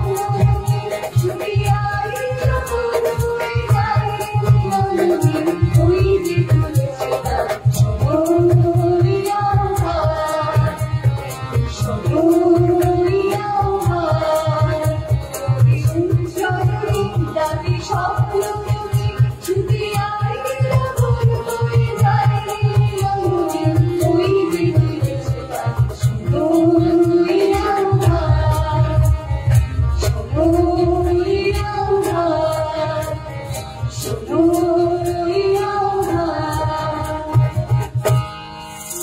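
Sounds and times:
driving drum beat: 0:00.0 - 0:39.0
person singing: 0:11.8 - 0:14.9, 0:34.0 - 0:37.4.

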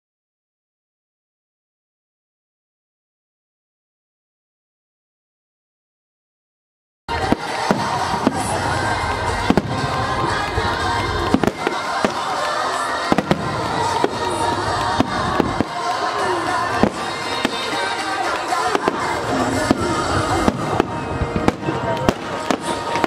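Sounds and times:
crowd voices: 0:07.1 - 0:23.0
music: 0:07.1 - 0:23.0.

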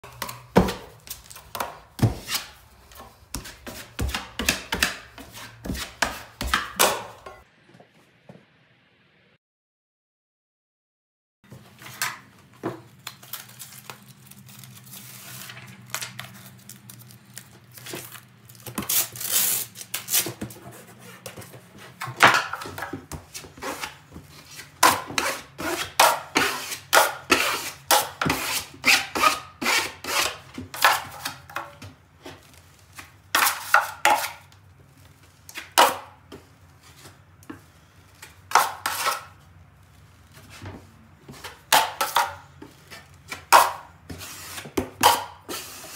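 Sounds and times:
taping knife scraping drywall: 0:00.1 - 0:06.8, 0:18.7 - 0:31.7, 0:32.4 - 0:34.5, 0:37.8 - 0:39.4, 0:41.3 - 0:45.9.

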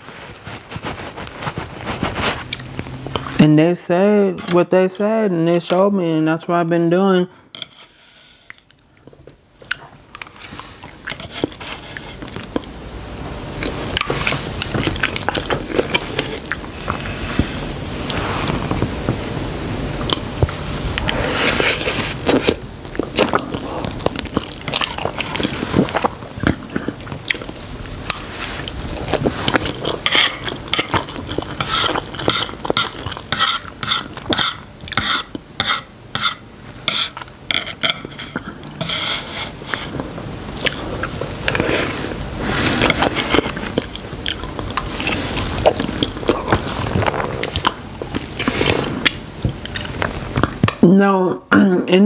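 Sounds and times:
chewing noodles: 0:00.3 - 0:03.4, 0:08.5 - 0:12.8, 0:13.6 - 0:19.3, 0:20.0 - 0:35.5, 0:39.5 - 0:50.6.

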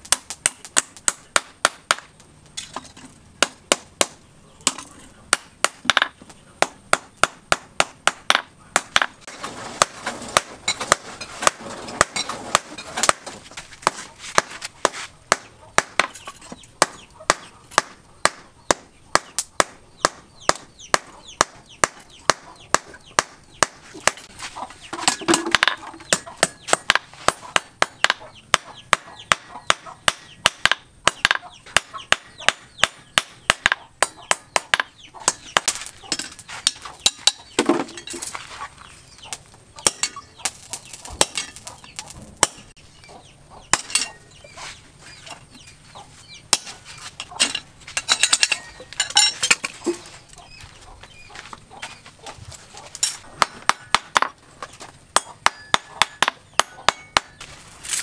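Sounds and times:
hammer striking hot steel on anvil: 0:25.1 - 0:38.1, 0:39.8 - 0:41.6, 0:43.7 - 0:44.2, 0:53.4 - 0:54.4, 0:55.1 - 0:57.5.

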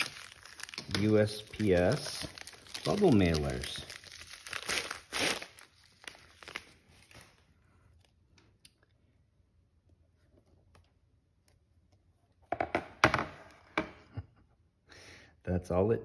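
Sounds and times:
bubble mailer crinkling: 0:00.0 - 0:07.5.

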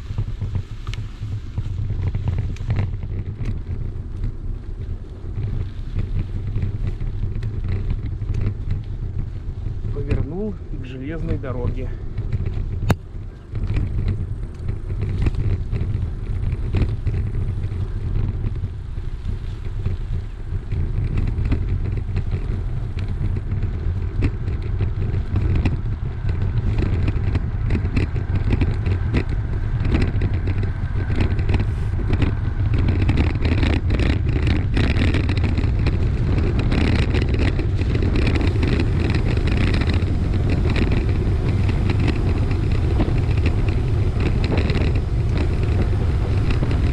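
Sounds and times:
bike clicks and rattles: 0:00.0 - 0:46.9
wind buffeting and tyre rumble: 0:00.0 - 0:46.9.

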